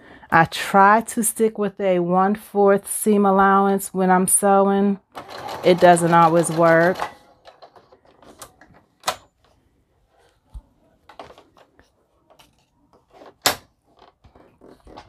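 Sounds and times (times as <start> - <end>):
sewing machine clicks and knocks: 5.2 - 8.1.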